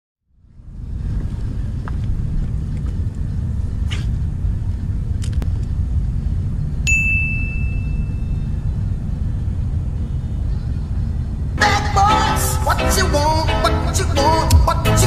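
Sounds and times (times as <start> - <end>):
wind rumble on microphone: 0.2 - 12.0
bright ringing ding: 6.9 - 8.6.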